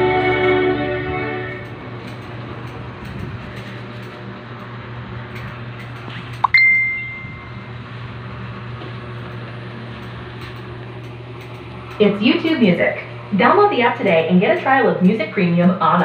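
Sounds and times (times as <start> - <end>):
steady low hum: 0.0 - 16.0
bright ringing clink: 6.4 - 7.7.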